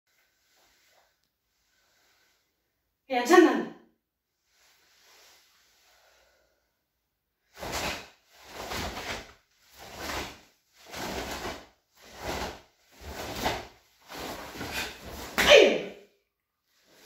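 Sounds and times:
martial arts uniform swishing: 0:00.1 - 0:02.6, 0:04.4 - 0:06.4, 0:07.4 - 0:16.0, 0:16.7 - 0:17.0
sharp breaths: 0:14.1 - 0:15.4.

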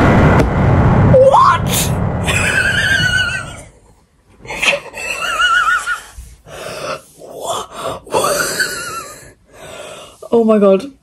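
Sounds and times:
person laughing high-pitched: 0:02.2 - 0:03.8.

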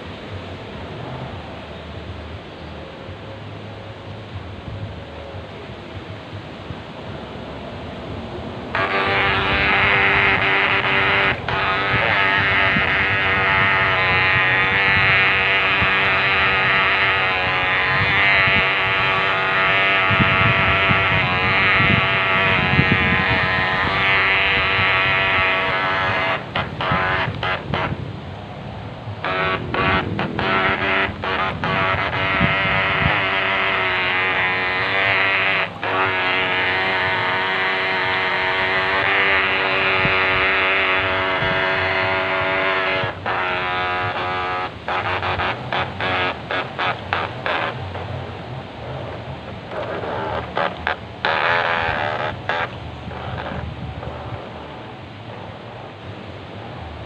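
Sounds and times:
water churning and splashing: 0:03.1 - 0:56.1
toy boat motor whining: 0:08.7 - 0:28.0, 0:29.2 - 0:48.2, 0:49.7 - 0:54.8.

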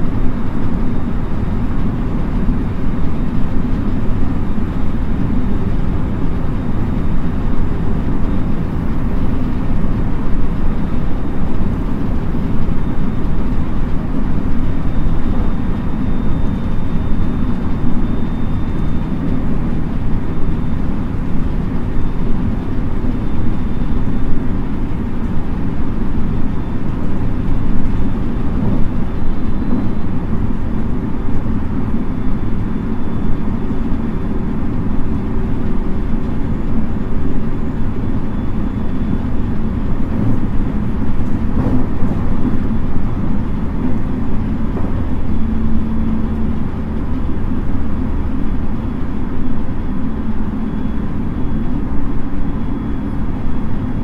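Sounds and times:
faint high whine: 0:00.0 - 0:54.0
train wheels rumbling: 0:34.0 - 0:51.8.

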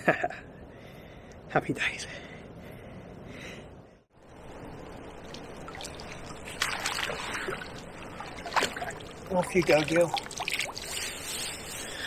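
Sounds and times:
water trickling and sloshing: 0:04.2 - 0:12.0
fish splashing in net: 0:05.3 - 0:09.3.

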